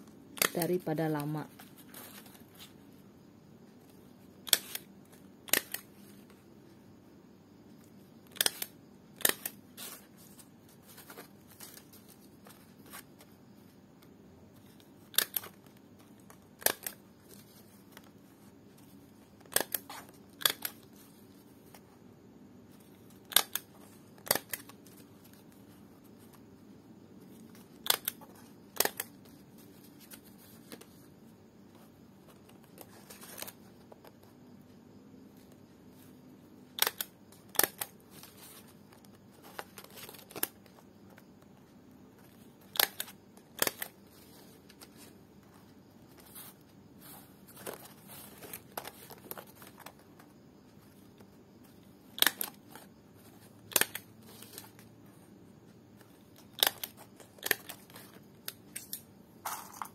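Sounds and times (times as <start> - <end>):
stapler clicks: 4.4 - 5.8, 8.3 - 9.6, 19.4 - 20.8, 23.2 - 24.7, 27.8 - 28.2, 28.8 - 29.1, 36.7 - 37.9, 42.7 - 43.9, 52.2 - 52.6, 53.7 - 54.1, 56.4 - 57.8.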